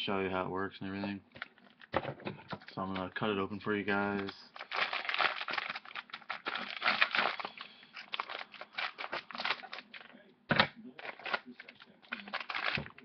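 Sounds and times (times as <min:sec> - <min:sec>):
plastic bag crinkling: 0:02.6 - 0:10.2, 0:10.9 - 0:13.0.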